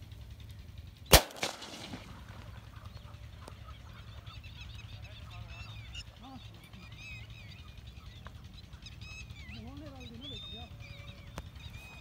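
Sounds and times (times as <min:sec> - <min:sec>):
shotgun blast: 0:01.1 - 0:02.4.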